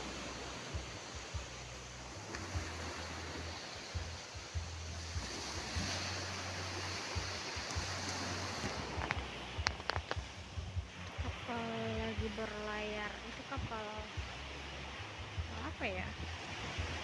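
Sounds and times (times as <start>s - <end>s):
waves breaking on beach: 0.0s - 17.0s
wind buffeting microphone: 0.0s - 17.0s.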